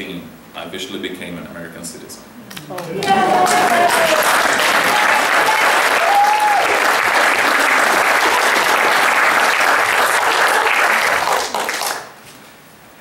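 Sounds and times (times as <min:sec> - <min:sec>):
audience applauding: 0:02.7 - 0:12.2.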